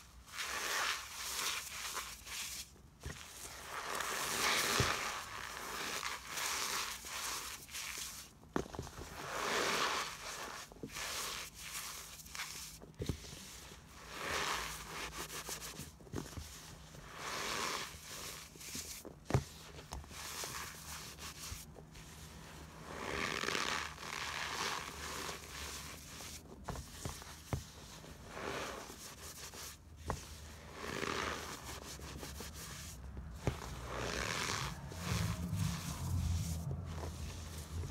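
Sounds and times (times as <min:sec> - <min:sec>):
foam crunching and rustling: 0:00.2 - 0:13.3.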